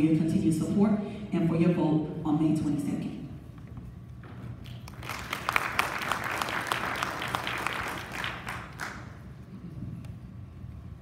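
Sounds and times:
audience applauding: 4.7s - 9.2s.

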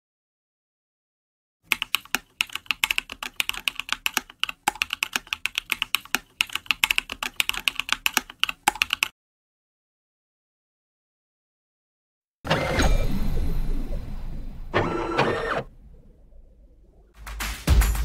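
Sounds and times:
computer keyboard typing: 1.7s - 9.1s.

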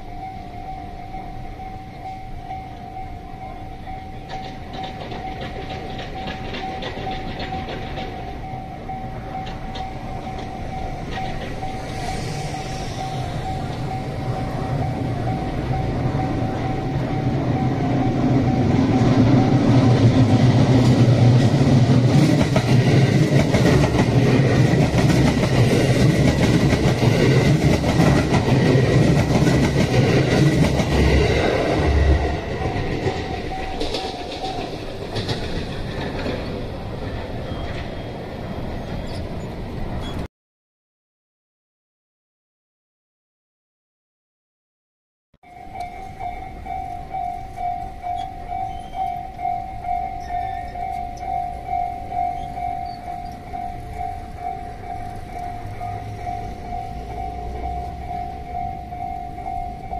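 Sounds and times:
level-crossing warning bell: 0.0s - 40.2s, 45.4s - 59.9s
train wheels clattering: 4.0s - 16.0s, 18.4s - 38.2s.

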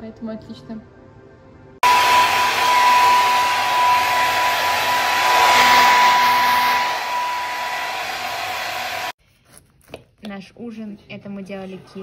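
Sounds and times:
hair dryer blowing: 1.8s - 9.2s.

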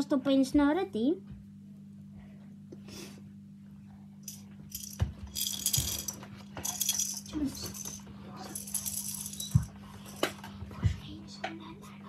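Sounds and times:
prop rattling and rustling: 4.3s - 10.3s.

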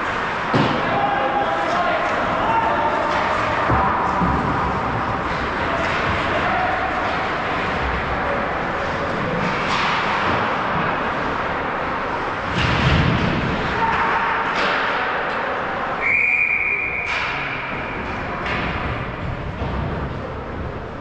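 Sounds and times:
hockey sticks and pucks clacking: 0.0s - 21.0s
ice rink din: 0.0s - 21.0s
referee's whistle: 16.0s - 17.2s.

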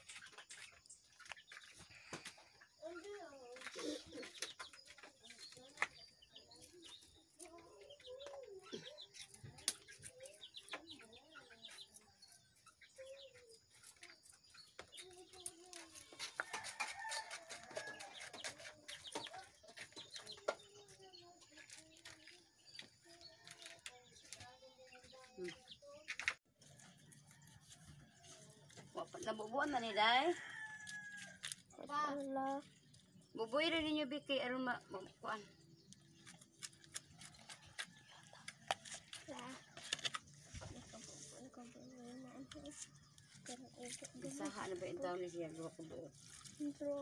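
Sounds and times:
chickens clucking: 0.0s - 29.2s.

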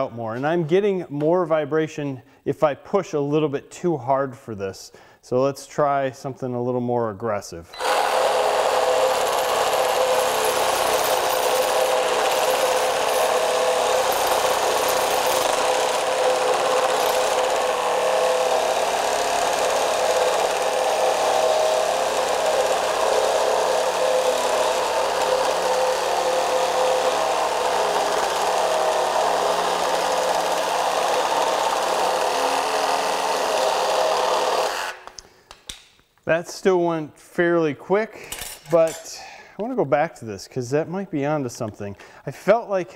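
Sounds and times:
reciprocating saw cutting wood: 7.8s - 35.1s.

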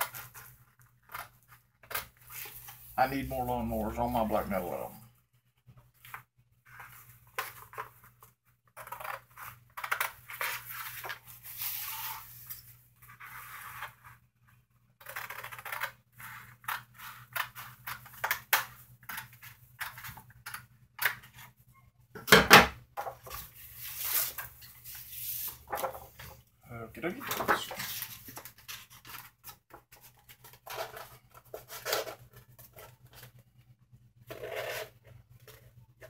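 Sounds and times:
scissors cutting paper: 15.0s - 21.2s
paper rustling: 23.1s - 26.4s, 27.2s - 33.4s.

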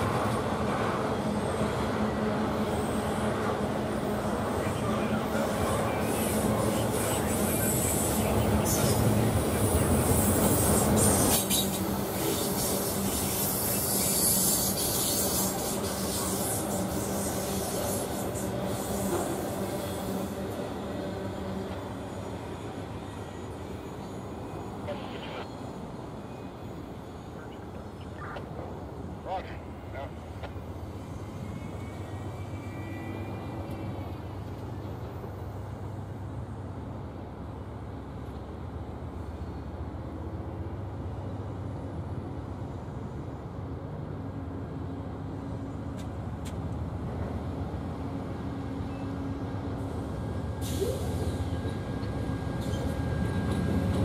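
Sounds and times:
freight train wheels rumbling: 0.0s - 54.0s
faint high-pitched squeal: 31.2s - 34.4s.

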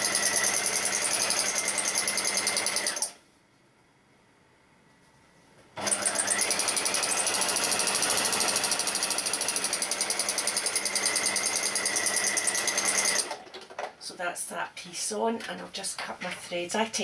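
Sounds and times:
sewing machine stitching: 0.0s - 3.2s, 5.8s - 13.9s.

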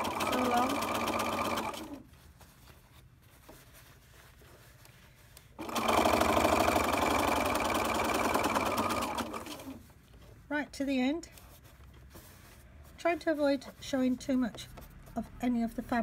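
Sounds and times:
sewing machine stitching: 0.0s - 2.0s, 5.6s - 9.8s.

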